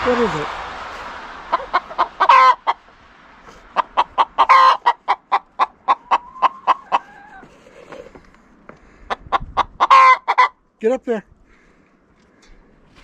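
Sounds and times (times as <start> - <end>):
hens clucking: 1.5 - 2.9, 3.5 - 10.6
hen drawn-out call: 3.8 - 8.0
hen squawking: 3.8 - 8.2, 9.1 - 10.6.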